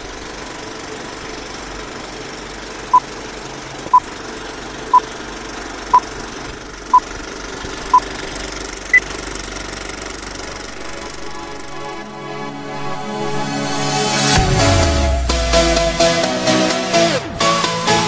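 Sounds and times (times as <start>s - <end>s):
film projector rattling: 0.0s - 12.1s.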